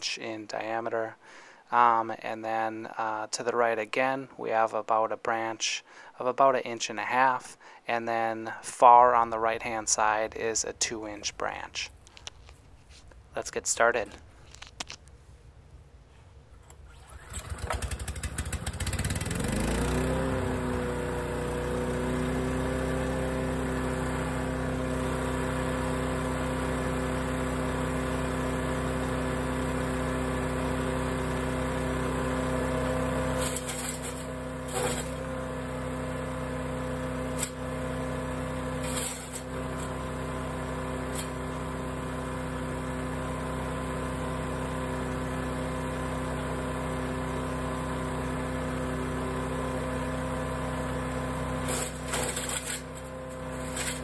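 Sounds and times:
small engine running: 16.6s - 54.0s.

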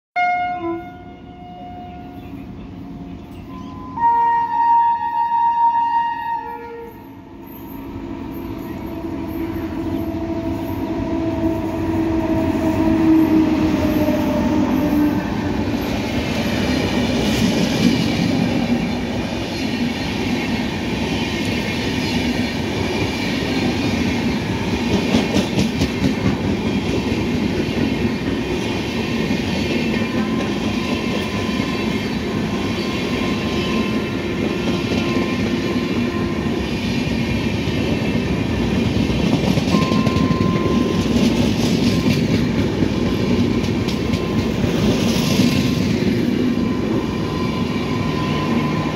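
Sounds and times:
train horn: 0.2s - 15.9s, 32.4s - 36.6s, 39.7s - 41.1s
train wheels clattering on rails: 10.5s - 48.9s.

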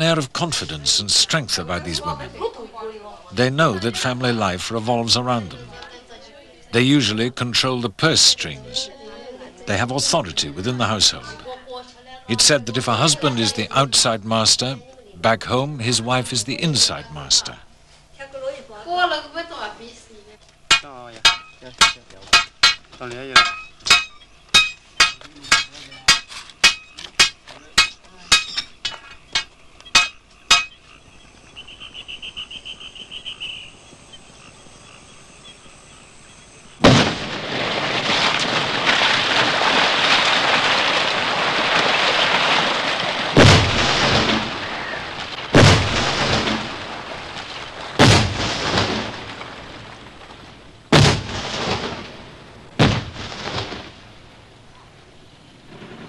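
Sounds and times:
falling rock and debris: 20.6s - 31.0s, 36.8s - 54.3s.

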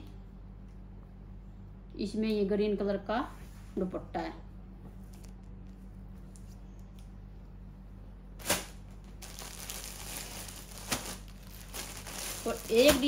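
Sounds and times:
low electrical hum: 0.0s - 13.0s
plastic packaging crinkling: 8.4s - 13.0s.

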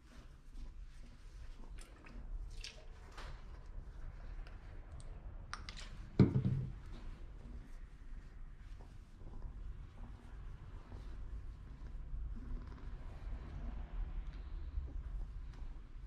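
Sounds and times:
dull thump: 6.2s - 6.8s.

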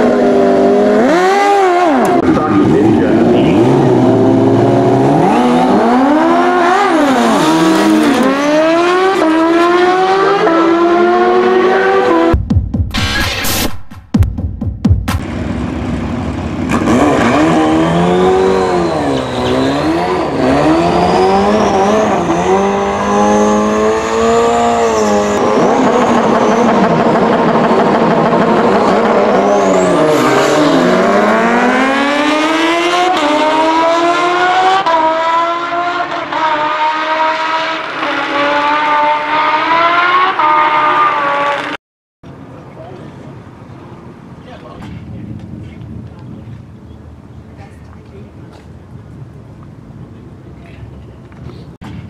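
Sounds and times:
motorcycle engines revving: 0.0s - 12.4s, 15.2s - 41.8s
motorcycles accelerating with upshifts: 0.0s - 12.4s, 15.2s - 41.8s.

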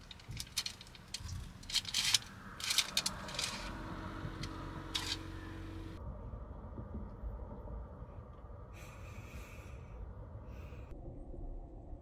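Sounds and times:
chopsticks clicking and scraping: 0.0s - 3.8s.

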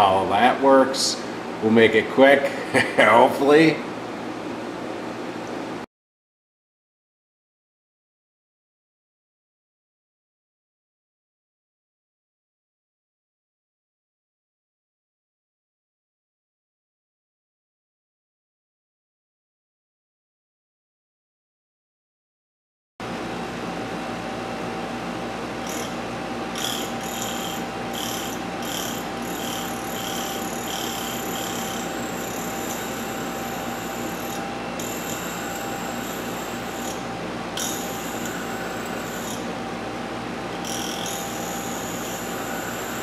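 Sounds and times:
rotary tool whine: 25.5s - 43.0s.

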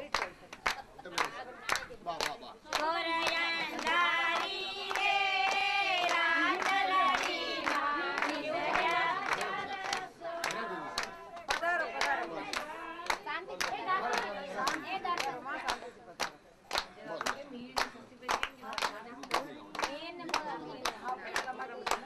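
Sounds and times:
sharp hand claps: 0.0s - 22.0s
women singing in chorus: 2.8s - 15.0s.

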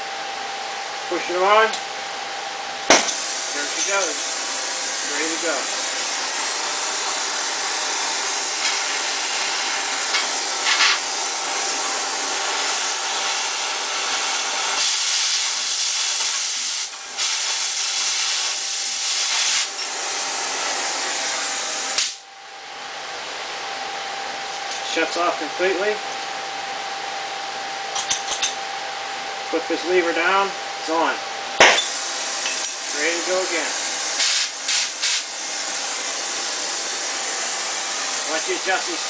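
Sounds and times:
cutting torch hissing: 2.9s - 22.2s, 31.6s - 39.0s.

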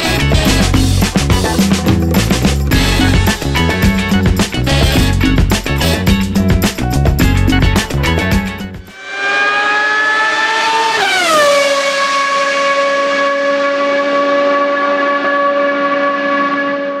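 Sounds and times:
racing car engine at high revs: 8.9s - 17.0s.

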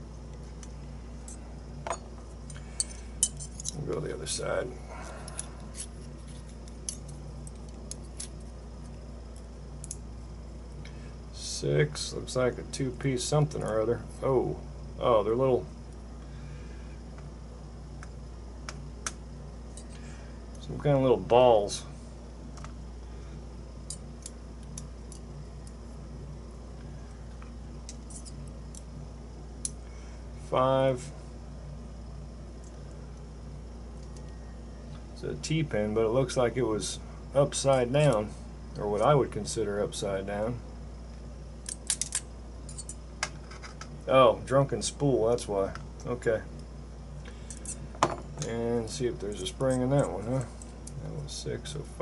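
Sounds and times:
faint low hum: 0.0s - 52.0s
metal tools clicking on lock: 41.6s - 43.0s.

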